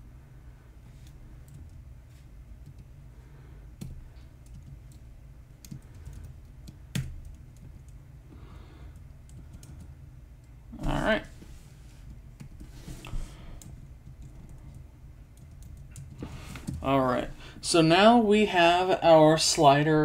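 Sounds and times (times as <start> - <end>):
low steady hum: 0.0 - 20.0
computer keyboard typing: 3.8 - 8.0, 8.9 - 9.9, 13.6 - 16.8.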